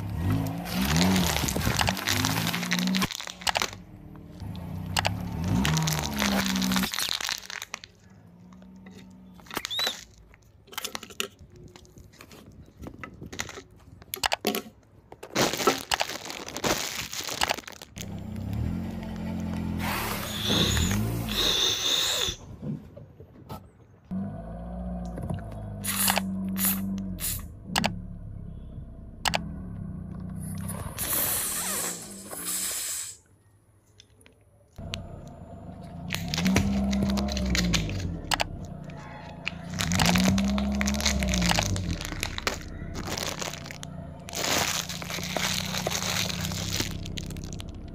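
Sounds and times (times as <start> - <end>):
car engine hum: 0.0 - 9.9, 18.0 - 21.5, 24.1 - 31.0, 34.8 - 47.9
ball covers crinkling: 0.2 - 4.3, 5.0 - 19.7, 34.8 - 47.9
plastic bottle crushed: 0.4 - 3.8, 5.0 - 8.1, 9.4 - 18.1, 36.1 - 38.6, 39.5 - 47.9
tyre crushing drink carton: 0.6 - 3.8, 5.4 - 7.9, 39.6 - 47.9.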